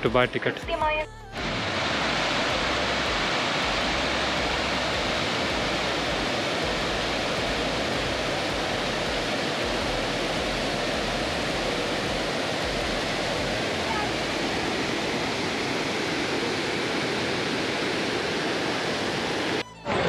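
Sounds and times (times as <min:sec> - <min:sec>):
waterfall rushing: 0:01.3 - 0:19.6.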